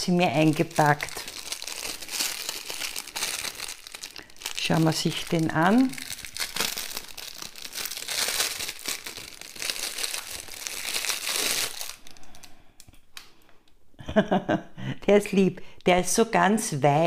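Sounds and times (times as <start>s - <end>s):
plastic bag crinkling: 0.0s - 12.6s.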